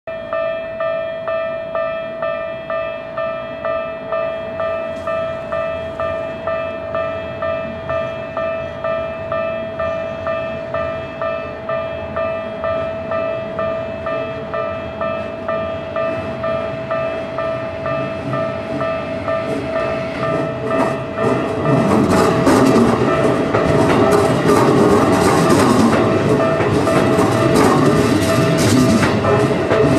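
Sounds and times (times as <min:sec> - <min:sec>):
level crossing bell ringing: 0:00.1 - 0:29.9
electric train rushing past: 0:01.8 - 0:29.9.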